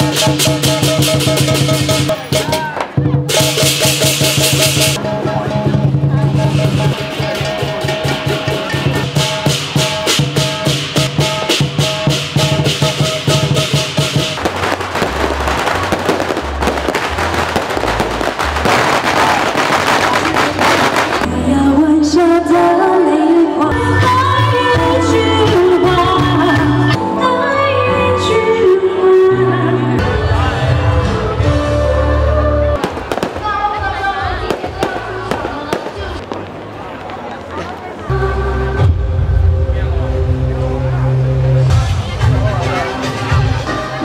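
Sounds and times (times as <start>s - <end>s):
firecrackers crackling: 0.0s - 5.4s, 6.3s - 21.3s, 32.8s - 38.1s
music with rattling beat: 0.0s - 21.3s
music with gliding melody: 21.2s - 32.8s.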